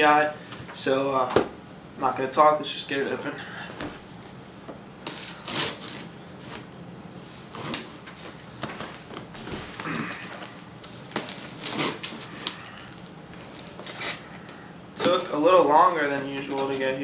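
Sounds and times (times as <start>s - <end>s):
packing tape being cut: 5.0s - 6.6s, 7.5s - 8.4s, 9.4s - 14.4s.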